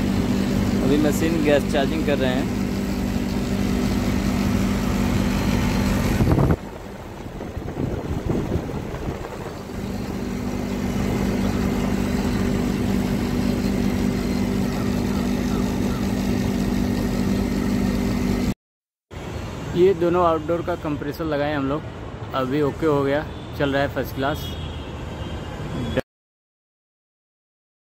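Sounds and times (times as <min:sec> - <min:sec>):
air conditioner unit running: 0:00.0 - 0:18.5.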